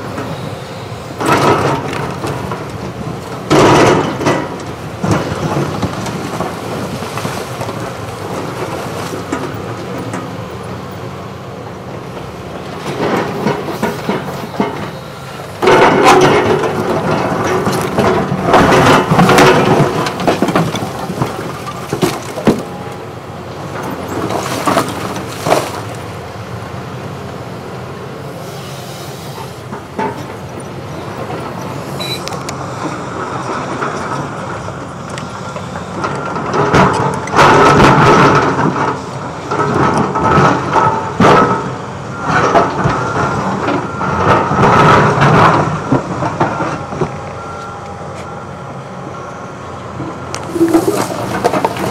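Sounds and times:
diesel engine running: 0.0 - 51.9
bucket scraping through concrete: 50.4 - 51.9.

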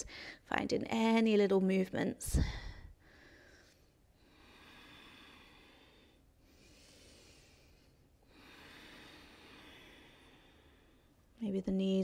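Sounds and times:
soft breathing: 2.3 - 11.4.

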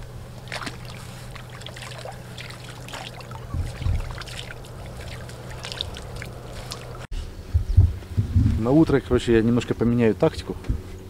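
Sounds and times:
steady low hum: 0.0 - 11.0
water splashing and trickling: 0.3 - 7.1
soft low thump: 7.5 - 8.6.

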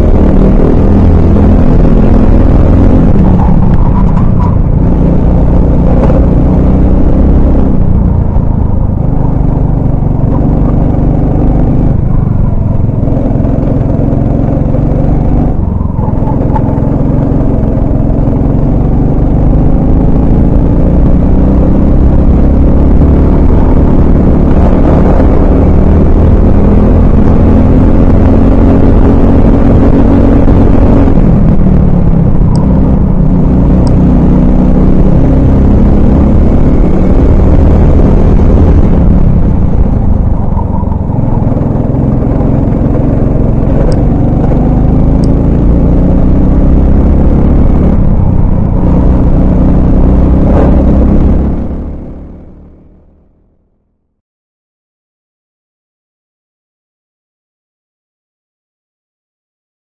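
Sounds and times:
kart engine at racing speed: 0.0 - 53.4.

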